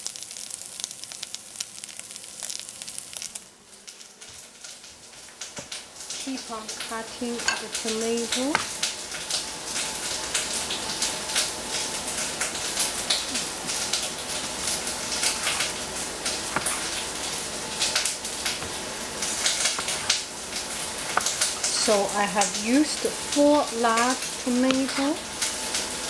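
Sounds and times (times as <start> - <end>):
onion sizzling in a pan: 0.0 - 26.0
cleaver tapping cutting board: 8.5 - 8.7, 16.5 - 16.9.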